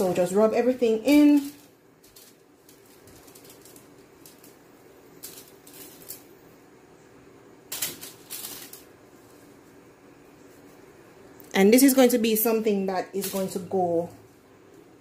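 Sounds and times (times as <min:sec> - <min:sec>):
aluminium foil crinkling: 0:00.0 - 0:06.5, 0:07.7 - 0:09.6, 0:13.0 - 0:14.2.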